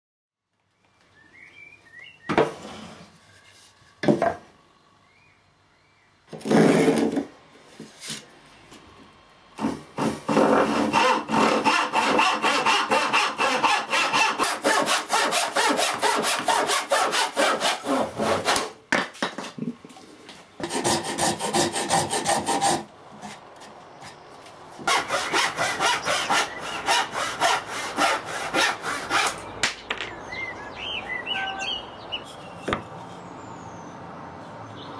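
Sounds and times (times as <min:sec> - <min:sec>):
short scrape: 0:02.6 - 0:04.0
hand saw cutting wood: 0:06.3 - 0:07.3, 0:09.6 - 0:18.8, 0:20.6 - 0:23.4, 0:24.8 - 0:29.4.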